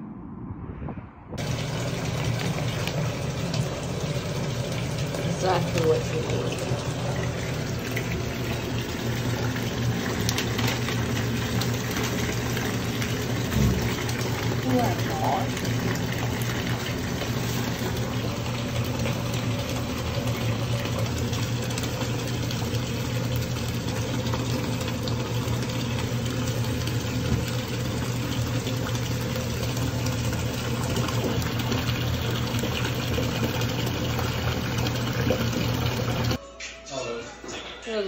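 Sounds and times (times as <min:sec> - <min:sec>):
low hum: 0:00.0 - 0:08.9
water pouring into bathtub: 0:01.4 - 0:36.4.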